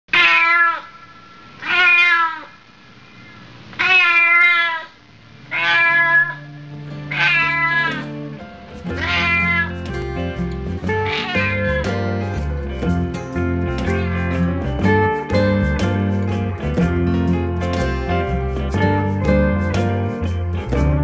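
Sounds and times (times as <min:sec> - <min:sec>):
cat meowing: 0:00.1 - 0:01.0, 0:01.6 - 0:02.6, 0:03.8 - 0:06.5, 0:07.1 - 0:08.1, 0:08.9 - 0:09.8, 0:10.9 - 0:11.9
music: 0:05.4 - 0:21.0.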